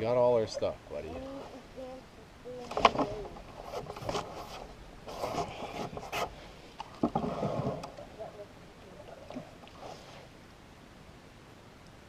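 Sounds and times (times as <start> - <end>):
light knocks and rubbing in canoe: 2.7 - 8.1.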